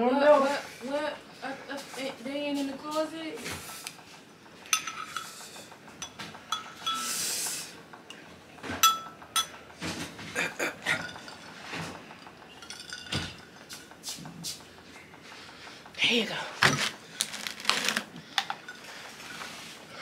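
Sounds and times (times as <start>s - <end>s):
glasses and dishes clinking: 4.7s - 5.4s, 6.0s - 7.1s, 8.7s - 9.6s, 10.8s - 13.5s.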